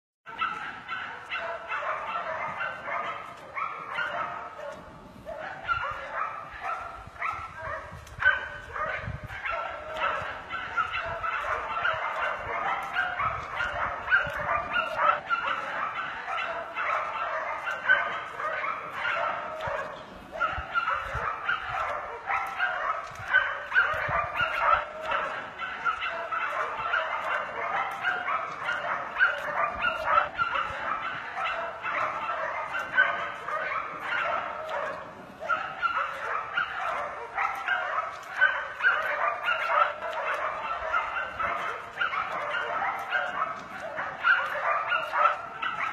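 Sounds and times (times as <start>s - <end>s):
dogs barking: 0.3s - 45.9s.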